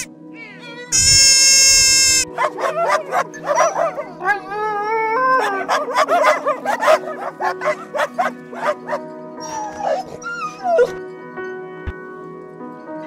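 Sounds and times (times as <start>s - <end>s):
background music: 0.0s - 13.0s
puppies yapping: 1.0s - 11.0s
puppy howling: 1.0s - 11.0s
puppies whining: 1.0s - 11.1s.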